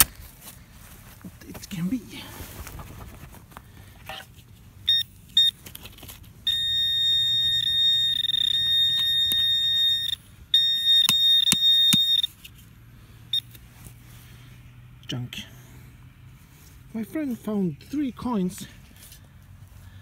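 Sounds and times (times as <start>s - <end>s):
pinpointer beeps: 4.8s - 5.6s, 6.5s - 12.3s
steady high tone: 6.5s - 12.3s
probe clicking against soil: 11.0s - 12.6s.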